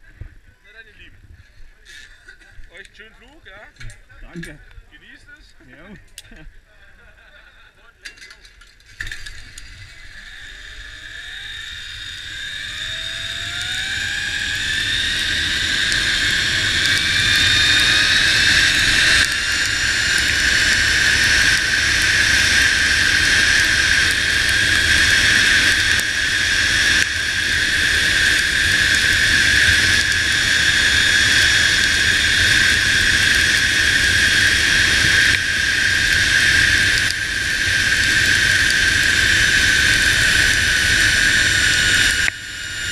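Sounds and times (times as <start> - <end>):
zipline pulleys whining on cable: 8.8 - 42.9.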